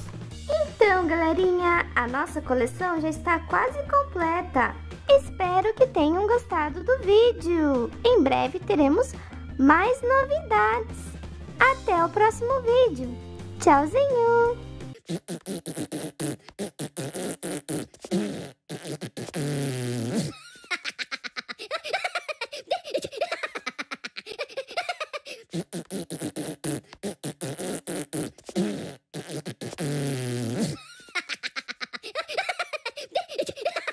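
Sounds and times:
cartoon voice beatboxing: 0.0 - 9.0, 9.6 - 20.3, 24.8 - 32.7
squeaky gibberish and giggles: 0.5 - 0.9, 15.0 - 33.9.

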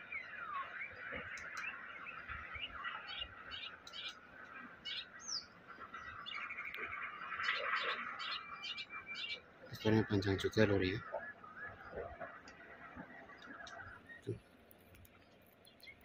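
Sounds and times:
bird singing whistled notes: 0.0 - 4.1, 4.9 - 12.2
background bird sound: 0.0 - 16.0.

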